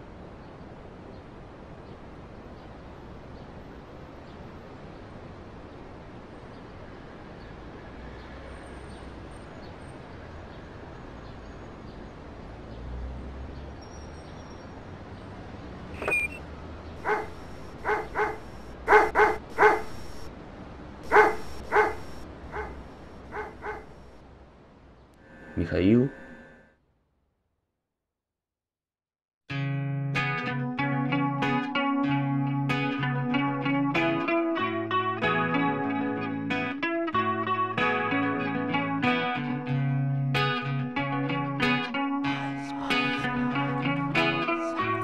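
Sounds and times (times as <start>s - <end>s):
dog barking: 17.0s - 20.3s, 21.1s - 24.1s.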